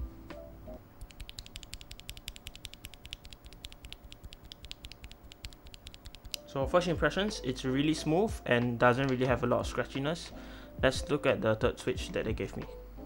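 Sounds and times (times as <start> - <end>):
faint background music: 0.0 - 2.1, 6.2 - 13.0
keyboard switch clicking: 1.0 - 6.4.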